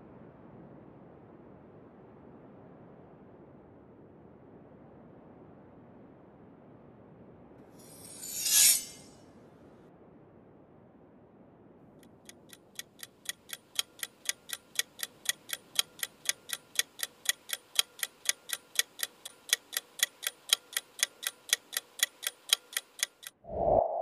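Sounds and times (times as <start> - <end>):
clock-like ticking: 12.0 - 23.4.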